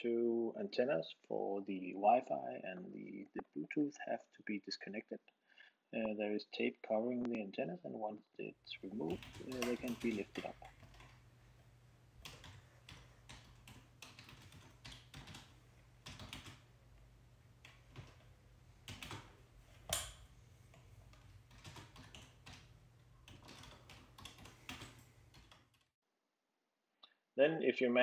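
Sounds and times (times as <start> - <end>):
low steady hum: 6.0 - 25.6.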